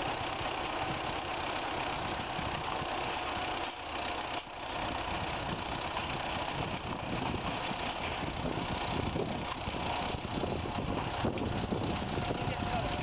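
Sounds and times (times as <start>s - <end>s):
tractor engine running: 0.0s - 13.0s.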